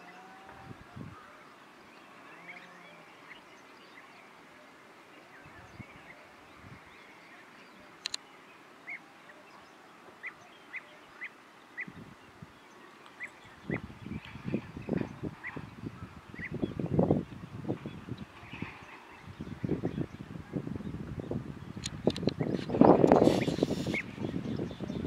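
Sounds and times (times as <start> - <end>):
birds calling: 0.0 - 25.0
sharp clicks: 8.0 - 8.2, 21.8 - 22.4.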